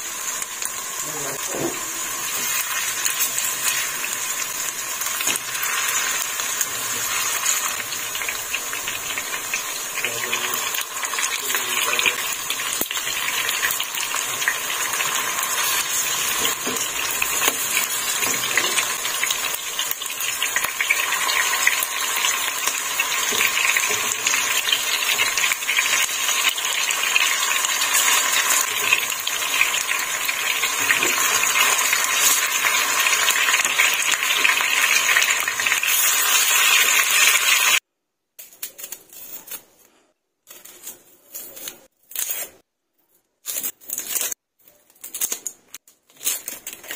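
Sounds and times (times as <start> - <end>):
meat sizzling in oil: 0.0 - 37.8
knife peeling onion skin: 38.4 - 46.9.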